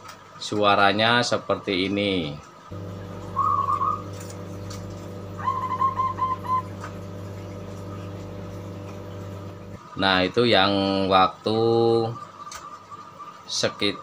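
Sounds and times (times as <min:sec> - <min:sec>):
steady low hum: 0:02.7 - 0:09.8
dove cooing: 0:03.3 - 0:04.1, 0:05.3 - 0:07.0.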